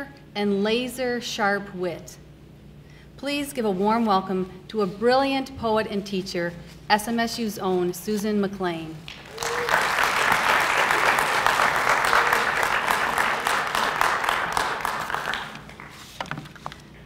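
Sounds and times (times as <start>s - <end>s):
audience applauding: 9.1s - 16.2s.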